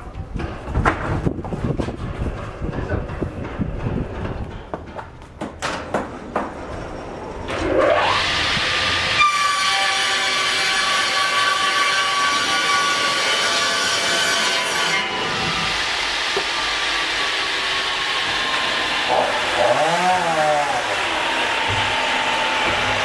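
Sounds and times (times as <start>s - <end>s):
circular saws whining: 6.6s - 23.0s
saw motors whining: 7.1s - 14.2s, 14.8s - 23.0s.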